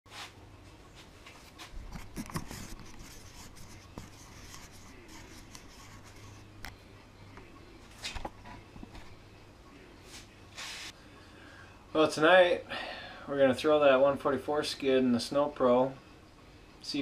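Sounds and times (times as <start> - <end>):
fabric rubbing on camera: 1.3 - 6.5.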